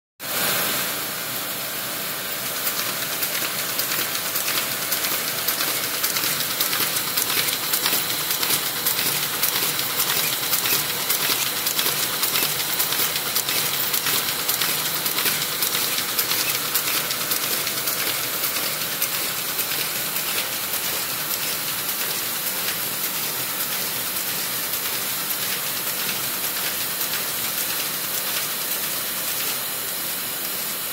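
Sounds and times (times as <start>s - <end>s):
paper-folding machine running: 0.3s - 30.9s
rapid fine clicks: 2.6s - 22.8s.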